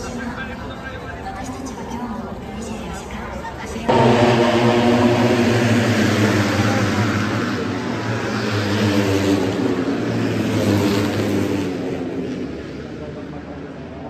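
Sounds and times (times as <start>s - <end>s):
crowd murmur: 3.9s - 9.7s
engine-like drone: 3.9s - 12.4s.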